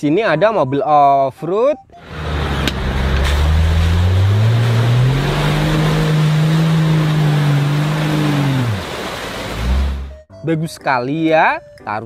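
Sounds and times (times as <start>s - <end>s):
car engine revving: 2.0s - 10.2s
rushing noise: 2.0s - 10.2s.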